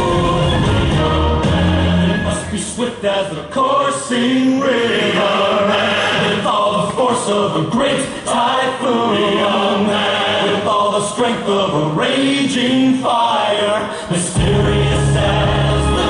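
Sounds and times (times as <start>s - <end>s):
men singing chant-like chorus: 0.0s - 16.0s
heavy bass beat: 14.4s - 16.0s.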